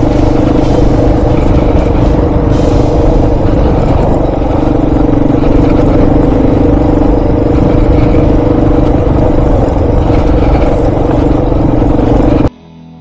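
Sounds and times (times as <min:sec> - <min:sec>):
motorcycle engine running steadily: 0:00.0 - 0:12.5.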